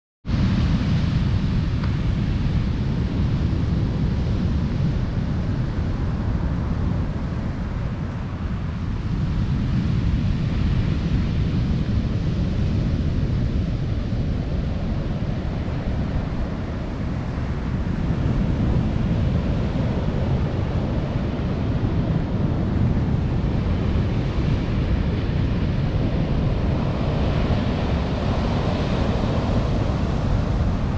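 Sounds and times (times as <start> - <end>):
wind rumbling on microphone: 0.3 - 30.9.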